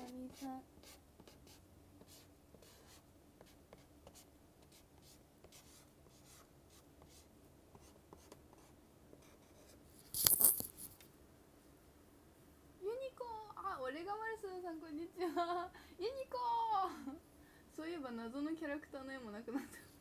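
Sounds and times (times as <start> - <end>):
pen scratching on paper: 0.0 - 10.9.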